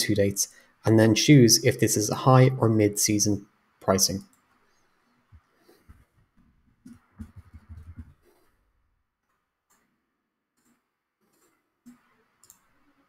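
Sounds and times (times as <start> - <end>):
keyboard typing: 6.9 - 8.4, 10.6 - 13.0
faint mouse clicks: 9.2 - 9.9, 10.6 - 12.8.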